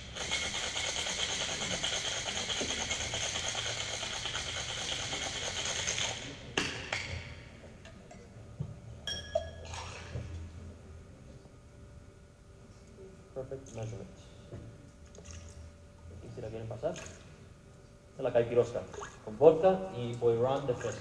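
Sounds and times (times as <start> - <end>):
light metal and glass clinks: 9.0 - 9.7.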